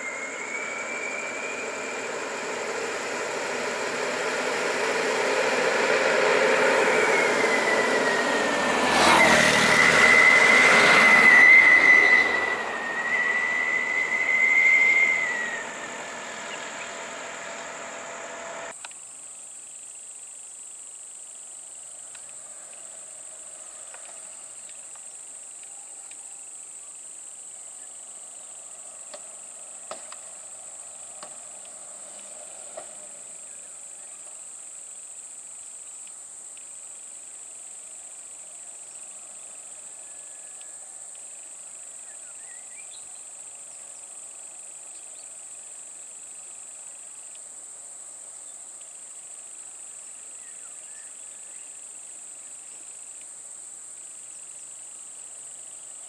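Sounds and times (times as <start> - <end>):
bus driving past: 0.0 - 18.8, 28.2 - 34.5
high gear whine: 0.0 - 19.0.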